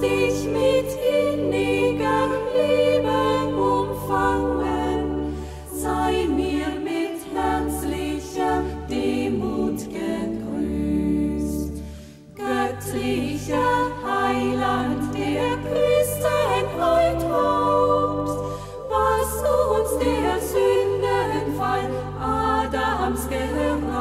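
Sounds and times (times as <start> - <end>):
choir singing: 0.0 - 24.0.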